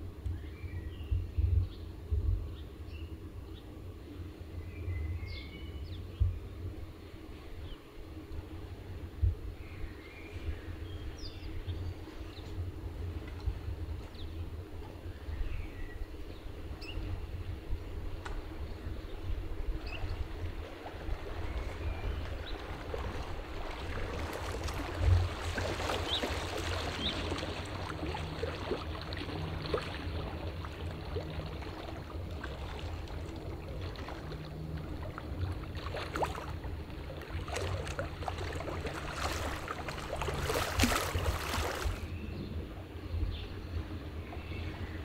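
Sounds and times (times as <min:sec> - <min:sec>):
low steady rumble: 0:00.0 - 0:45.0
waves slapping a stone wall: 0:20.4 - 0:42.1.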